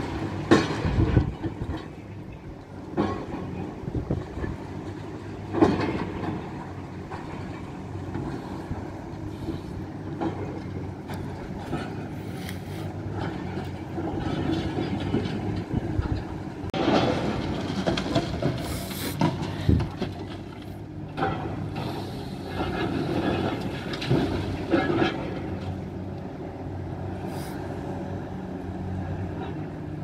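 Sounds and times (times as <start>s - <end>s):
demolition machinery running: 0.0s - 30.0s
debris crunching and clanking: 13.0s - 25.8s.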